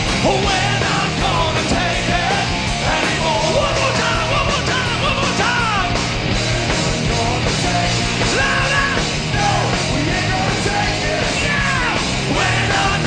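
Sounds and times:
hard rock band playing: 0:00.0 - 0:13.0.

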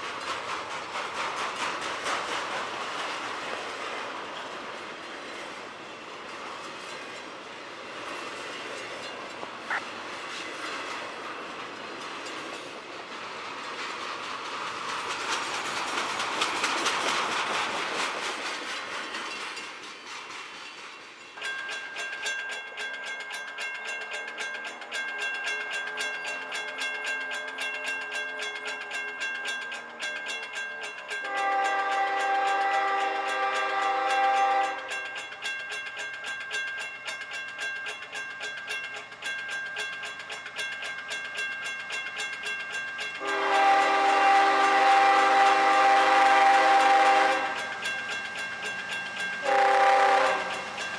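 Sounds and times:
train wheels clattering: 0:00.0 - 0:50.9
locomotive horn: 0:31.2 - 0:34.9, 0:43.2 - 0:47.6, 0:49.4 - 0:50.5.

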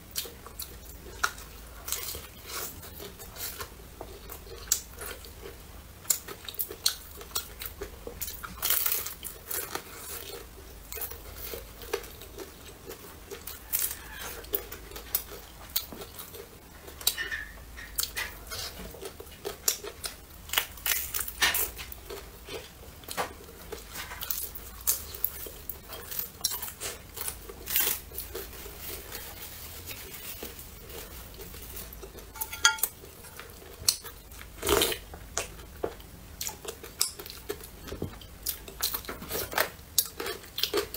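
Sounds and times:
crunchy bites and chewing: 0:00.2 - 0:29.3.

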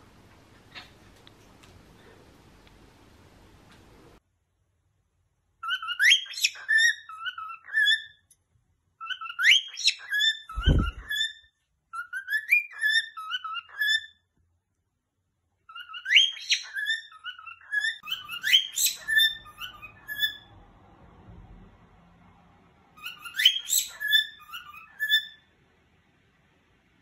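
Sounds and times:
cockatiel whistling song: 0:05.6 - 0:08.2, 0:09.0 - 0:14.2, 0:15.7 - 0:20.5, 0:23.0 - 0:25.4.

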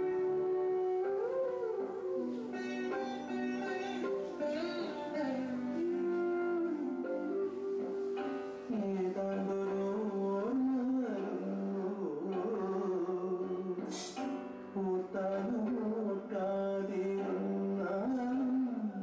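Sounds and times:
melody: 0:00.0 - 0:11.0.

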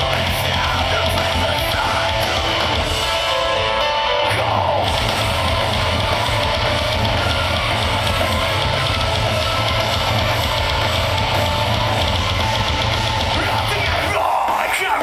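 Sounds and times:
heavy distorted electric guitars: 0:00.0 - 0:15.0
pounding drum kit: 0:00.0 - 0:15.0.

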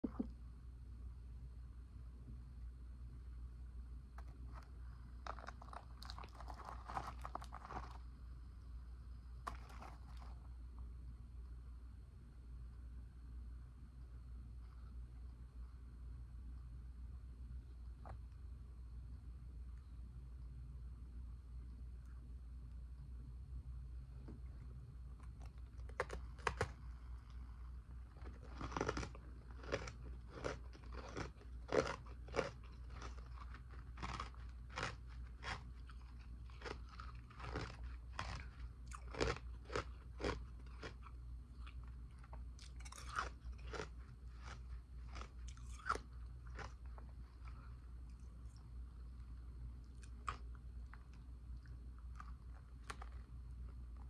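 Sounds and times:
ice being chewed crunching: 0:04.2 - 0:08.1, 0:09.4 - 0:10.5, 0:25.2 - 0:54.0.

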